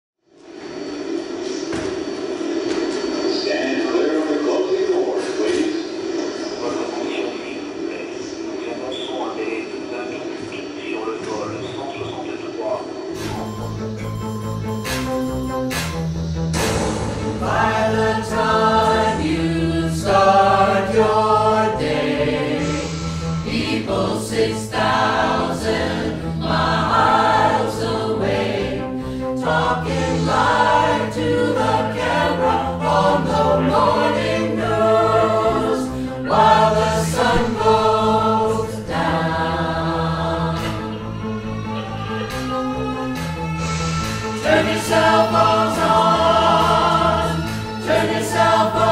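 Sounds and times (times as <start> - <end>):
vocal group singing in harmony: 16.6 - 48.9.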